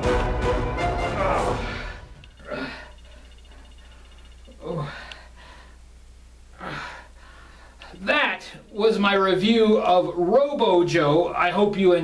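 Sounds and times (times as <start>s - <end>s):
man groaning in pain: 1.1s - 2.8s, 4.6s - 5.0s.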